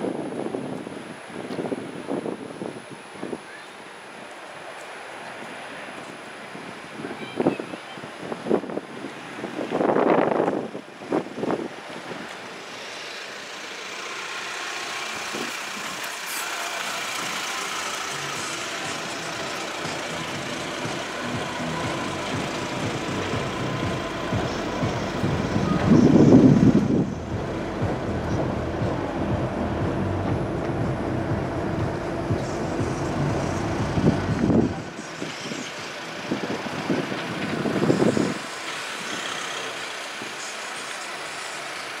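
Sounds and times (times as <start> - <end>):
engine rumble: 0.0 - 42.0.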